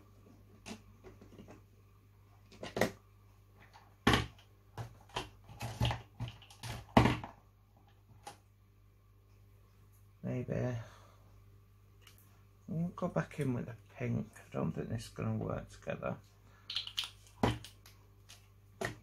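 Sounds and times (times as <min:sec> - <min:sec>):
craft supplies knocking on desk: 0:04.0 - 0:07.3.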